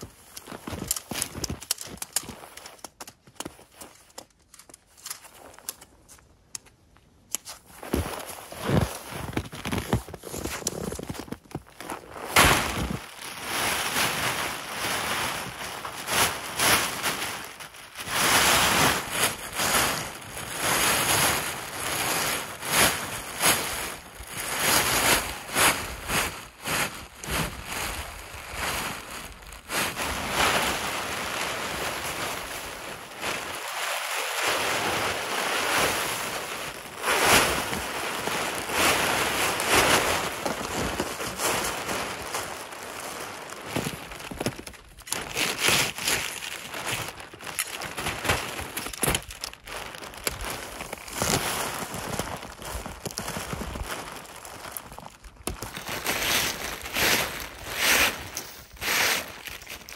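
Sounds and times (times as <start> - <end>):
tent fabric rustling and swishing: 0.0 - 6.2, 7.3 - 59.9.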